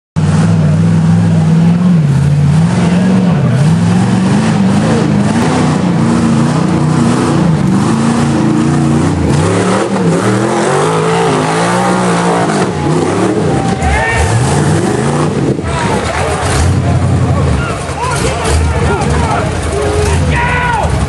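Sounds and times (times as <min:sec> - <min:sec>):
buggy engine revving hard: 0:00.2 - 0:21.0.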